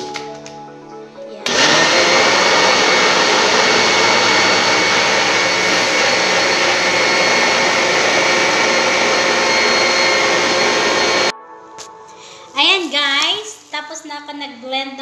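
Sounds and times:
electric blender motor whine: 1.5s - 11.3s.

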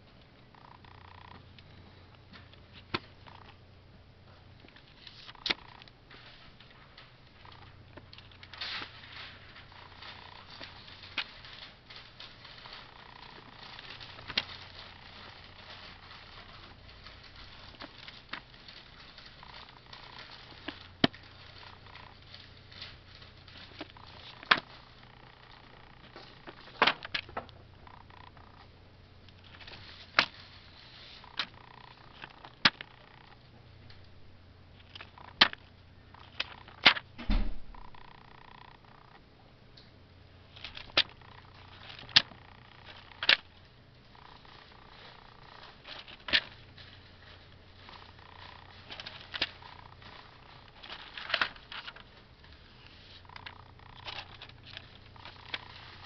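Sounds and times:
pages turning: 4.7s - 28.6s, 29.3s - 33.4s, 40.5s - 56.0s.

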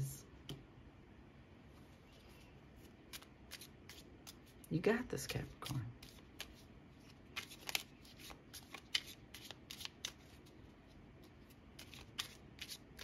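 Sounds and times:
cards being shuffled: 2.8s - 4.7s, 5.3s - 10.6s, 11.2s - 13.0s.

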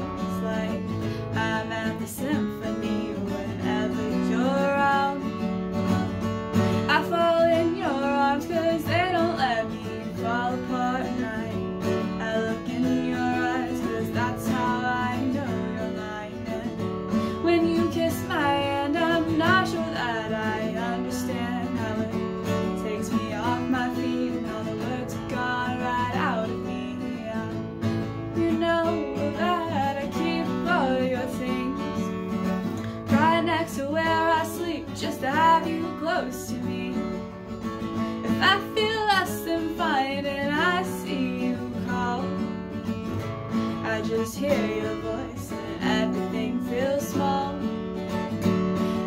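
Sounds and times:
acoustic guitar strumming: 0.0s - 49.0s
woman singing: 0.0s - 49.0s.

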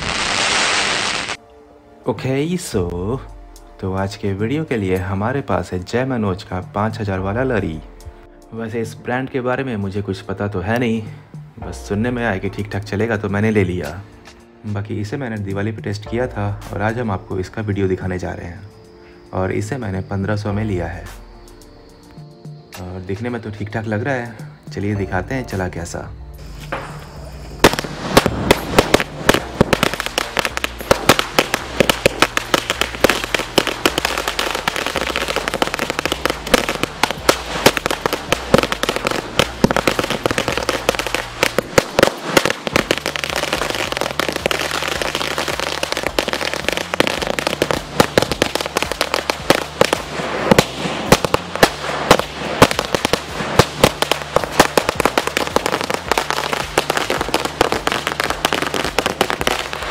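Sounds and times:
loud firecracker cracks: 27.6s - 59.9s.

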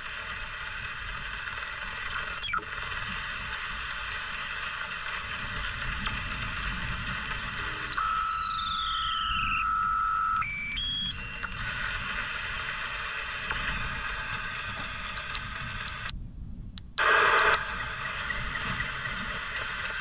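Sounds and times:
radio static hiss: 0.0s - 16.2s, 16.8s - 20.0s
radio carrier whistles: 7.2s - 13.7s.

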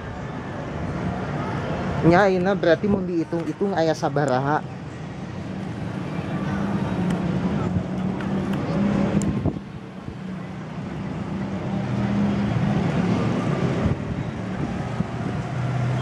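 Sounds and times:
engine hum: 3.3s - 16.0s
wind noise on microphone: 5.3s - 10.4s, 12.2s - 16.0s.

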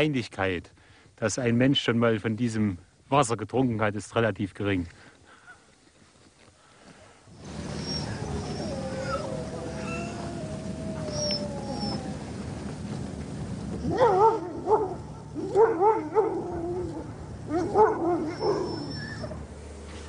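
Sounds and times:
dogs howling: 7.4s - 13.0s, 13.8s - 19.6s.

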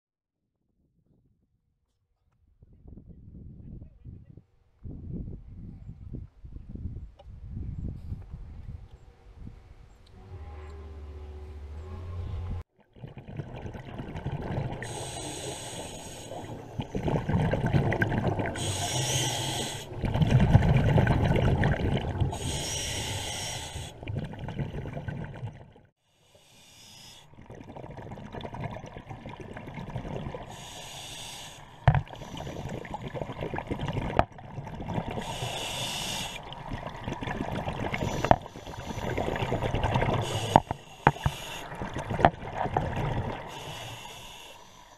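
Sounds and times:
bubbling exhales underwater: 12.8s - 25.9s, 27.3s - 30.8s, 31.4s - 44.5s
regulator inhale hiss: 14.8s - 16.9s, 18.6s - 20.0s, 22.3s - 24.0s, 26.1s - 27.3s, 30.5s - 32.7s, 35.2s - 36.5s, 37.9s - 39.4s, 40.2s - 41.7s, 43.4s - 44.9s.

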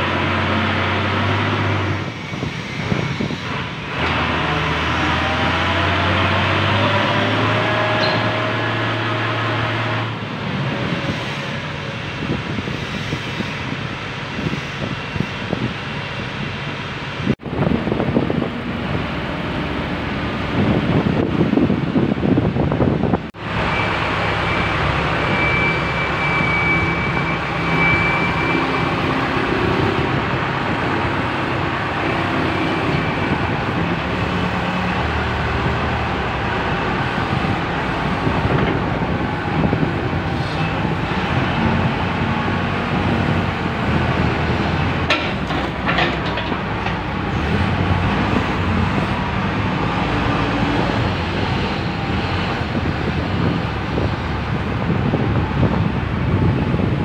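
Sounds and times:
diesel engine running: 0.0s - 11.0s, 15.5s - 57.0s
metallic clanks: 45.0s - 47.2s.

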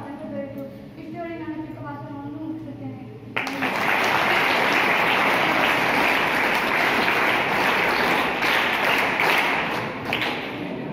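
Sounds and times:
children clapping: 3.4s - 10.8s.

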